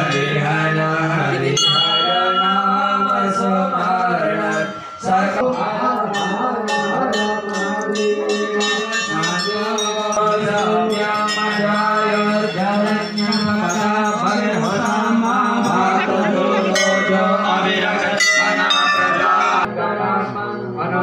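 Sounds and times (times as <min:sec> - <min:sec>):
temple bells struck: 0:00.0 - 0:17.6
chanted mantras: 0:00.0 - 0:21.0.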